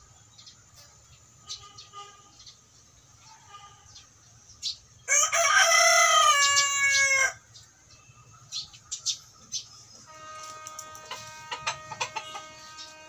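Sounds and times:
rooster crowing: 5.1s - 7.4s, 11.0s - 13.0s.

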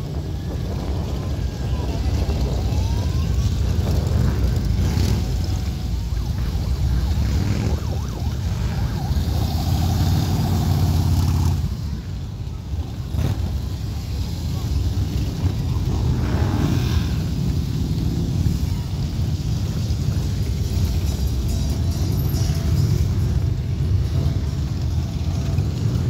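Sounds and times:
motorcycles rumbling past: 7.0s - 11.9s.

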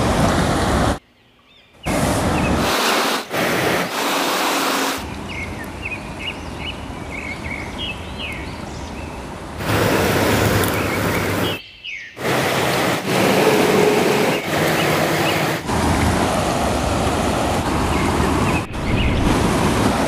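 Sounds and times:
fast river rushing: 0.0s - 1.0s, 9.6s - 11.6s, 12.2s - 20.0s
small bird chirping: 5.2s - 9.2s.

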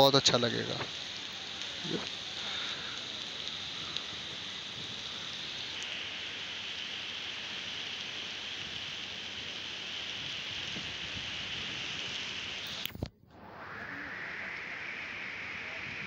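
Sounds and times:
heavy rain on flooded pavement: 0.0s - 13.0s.

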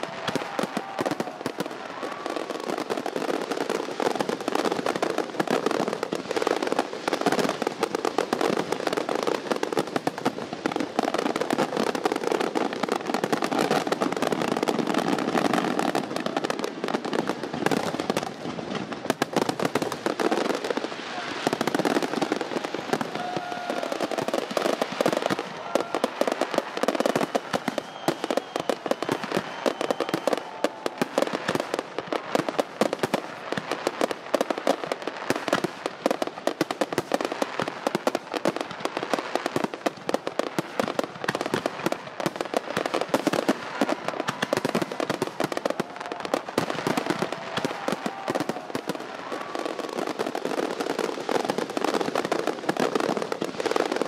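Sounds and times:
fireworks bangs and crackles: 0.0s - 54.0s.

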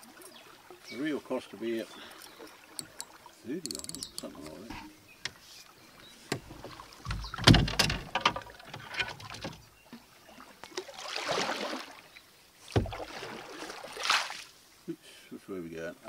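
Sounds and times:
paddle splashing through water: 4.3s - 14.6s
sharp knocks: 6.3s - 9.6s, 12.7s - 13.0s.

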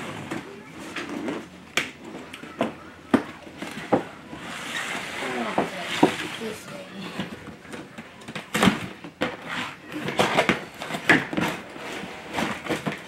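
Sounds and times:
cardboard scraping and rustling: 3.6s - 13.0s.

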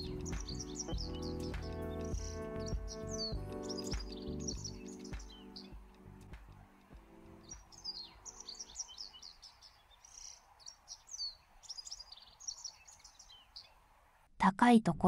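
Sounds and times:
low background music: 0.0s - 9.2s
bird chirping and twittering: 0.0s - 13.8s.

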